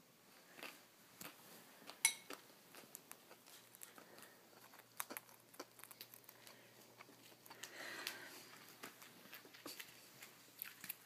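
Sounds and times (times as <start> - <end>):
birds pecking at cracker: 2.7 - 11.0.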